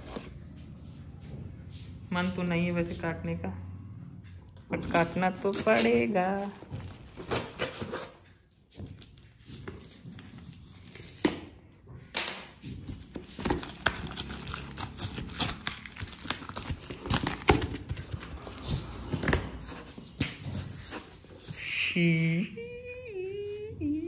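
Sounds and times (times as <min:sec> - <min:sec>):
packing tape ripping off cardboard: 0:04.9 - 0:08.2, 0:09.1 - 0:11.5, 0:12.1 - 0:20.9.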